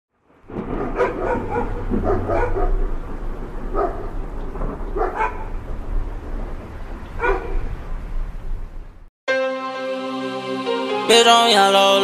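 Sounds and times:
dog barking: 0:00.7 - 0:02.8, 0:03.7 - 0:04.1, 0:05.0 - 0:05.5, 0:07.2 - 0:07.6.

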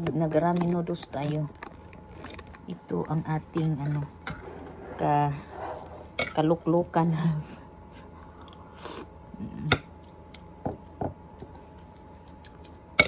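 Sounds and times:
wet chewing and mouth smacks: 0:11.3 - 0:13.0.

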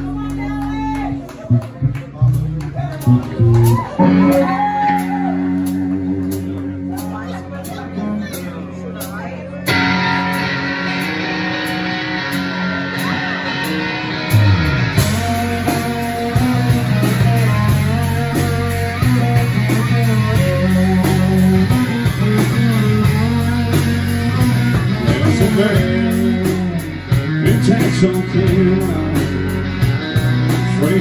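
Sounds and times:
electric guitar notes: 0:00.0 - 0:31.0
live rock band playing: 0:00.0 - 0:31.0.

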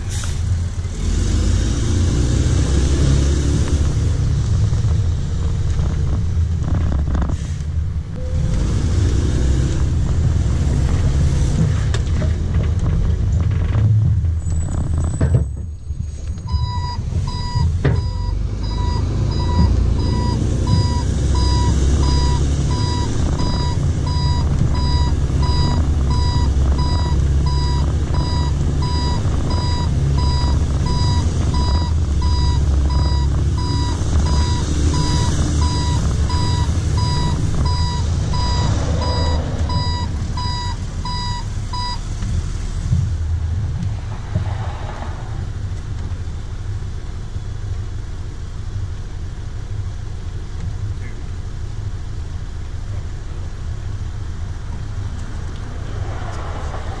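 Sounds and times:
garbage truck engine rumble: 0:00.0 - 0:57.0
reverse alarm beeping: 0:16.5 - 0:42.0.

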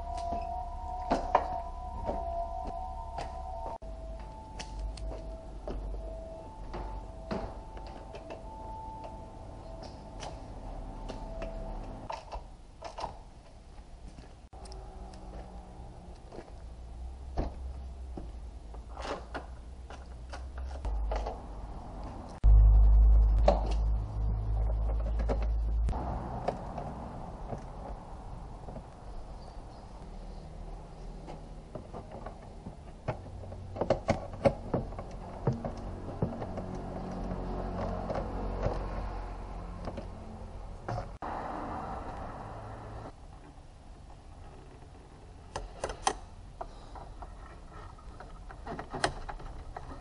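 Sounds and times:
low steady rumble: 0:19.5 - 0:31.8
steady low hum: 0:20.8 - 0:26.1.

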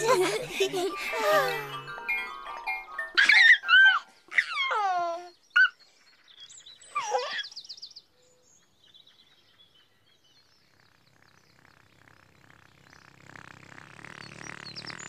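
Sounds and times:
baby giggling: 0:00.0 - 0:02.3, 0:03.1 - 0:05.8
birds chirping: 0:00.0 - 0:15.0.

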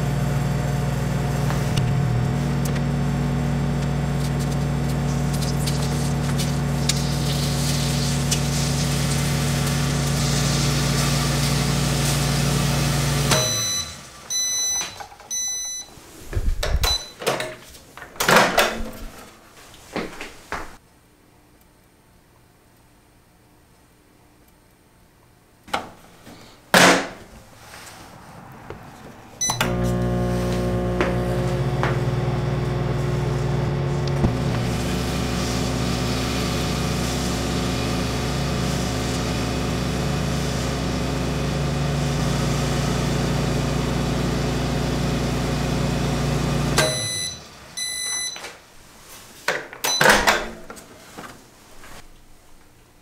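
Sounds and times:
microwave oven humming: 0:00.0 - 0:15.8, 0:29.4 - 0:48.2
short beeps: 0:13.3 - 0:15.9, 0:16.8 - 0:17.2, 0:29.4 - 0:29.7, 0:46.8 - 0:48.4
microwave door shutting: 0:46.8 - 0:47.3.

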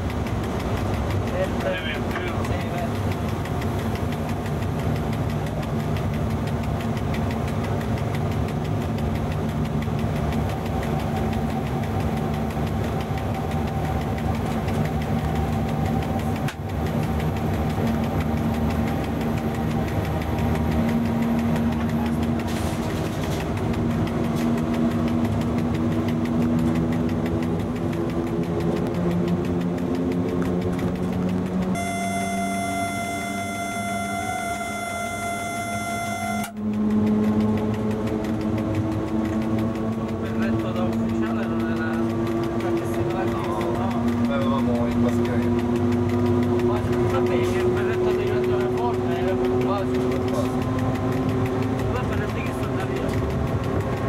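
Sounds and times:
locomotive cab rumble: 0:00.0 - 0:54.0
traction motors and blowers humming: 0:00.0 - 0:54.0
higher steady tones: 0:31.7 - 0:36.7.

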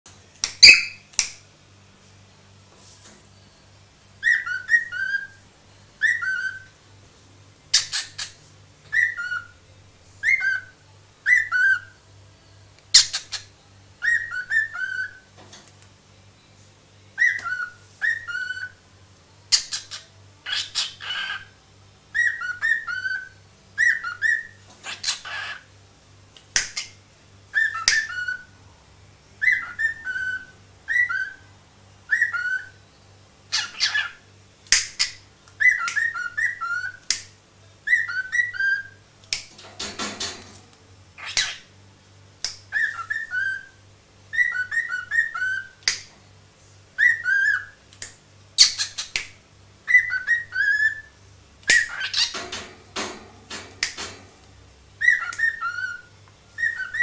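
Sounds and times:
cockatiel whistling: 0:00.6 - 0:01.0, 0:04.2 - 0:05.4, 0:06.0 - 0:06.7, 0:08.9 - 0:09.5, 0:10.2 - 0:12.0, 0:14.0 - 0:15.2, 0:17.2 - 0:18.8, 0:22.2 - 0:25.6, 0:27.6 - 0:28.5, 0:29.4 - 0:31.4, 0:32.1 - 0:32.8, 0:35.6 - 0:37.0, 0:37.9 - 0:39.0, 0:42.7 - 0:45.8, 0:47.0 - 0:47.8, 0:49.9 - 0:52.3, 0:55.0 - 0:57.0.

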